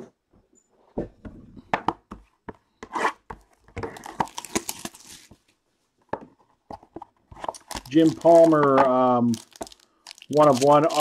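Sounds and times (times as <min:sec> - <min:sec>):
cardboard tearing and rustling: 0:03.9 - 0:05.3, 0:07.4 - 0:11.0.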